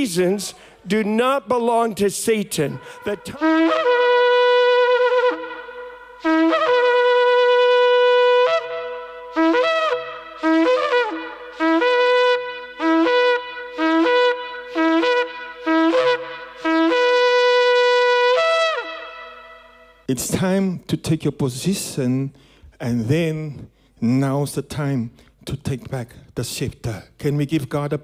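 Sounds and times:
shofar horn blasts: 0:02.8 - 0:20.0.

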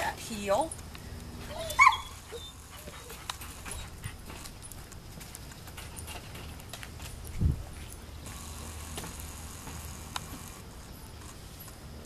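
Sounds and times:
dog whining: 0:01.4 - 0:04.3.

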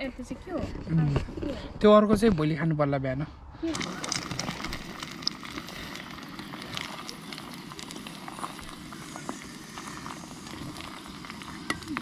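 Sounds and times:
campfire crackling and popping: 0:03.6 - 0:12.0
steady fire hiss: 0:03.6 - 0:12.0.

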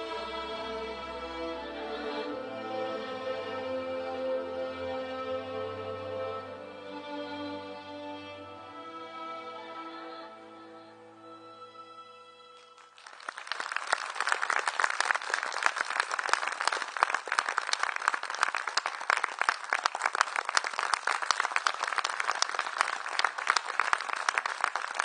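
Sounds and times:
audience applauding: 0:12.6 - 0:25.0.

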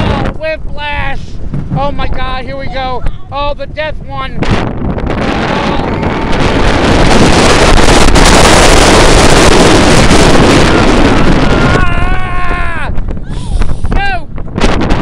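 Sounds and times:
wind rushing over microphone: 0:00.0 - 0:15.0
rider yelling: 0:11.2 - 0:13.0.

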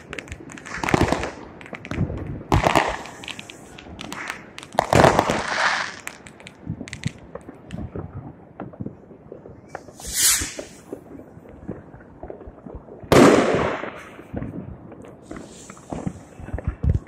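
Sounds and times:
firework rocket whooshing: 0:00.0 - 0:06.2, 0:09.8 - 0:10.9
firecrackers popping: 0:00.0 - 0:09.0, 0:09.7 - 0:17.0.

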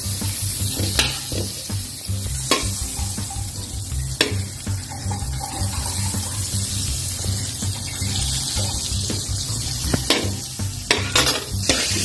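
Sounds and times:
butter sizzling in a wok: 0:00.0 - 0:12.0
spatula clicking against pan: 0:04.1 - 0:06.6.

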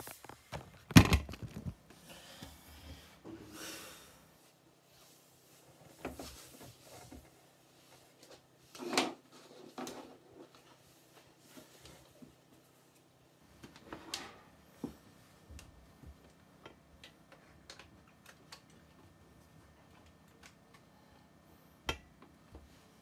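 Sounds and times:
soft rustles: 0:00.0 - 0:01.9.

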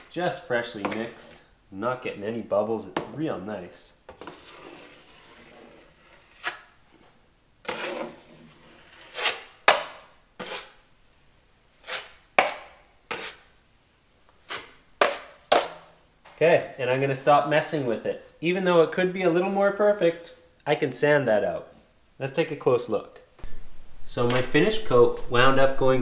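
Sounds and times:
drywall knife scraping compound: 0:00.0 - 0:01.5, 0:04.1 - 0:07.0, 0:07.6 - 0:10.9, 0:11.8 - 0:13.5, 0:14.4 - 0:15.9.

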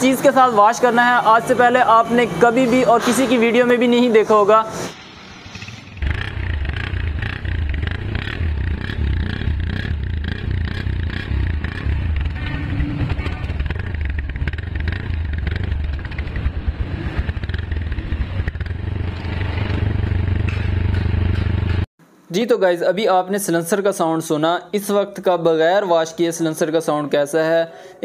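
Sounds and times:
motorcycle engine exhaust: 0:04.9 - 0:21.9.

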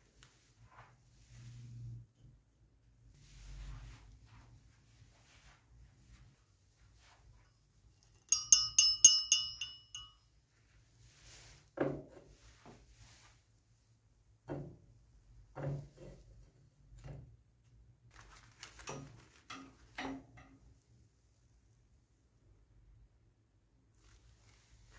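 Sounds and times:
bright ringing clinks: 0:08.2 - 0:10.2.

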